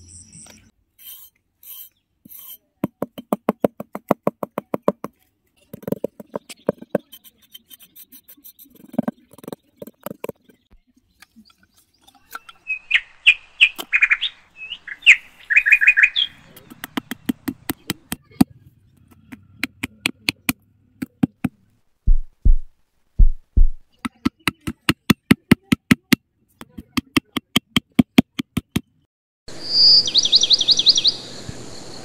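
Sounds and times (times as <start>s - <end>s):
hammer tapping wooden sticks: 2.8s - 5.2s, 16.6s - 18.3s, 19.1s - 22.7s, 23.6s - 28.9s
birds chirping: 5.6s - 19.8s, 29.5s - 32.0s.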